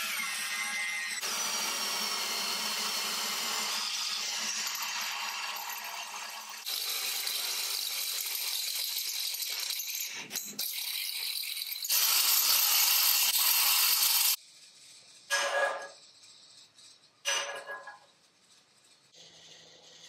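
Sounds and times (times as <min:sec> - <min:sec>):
drill bit grinding through steel: 0:10.6 - 0:14.4.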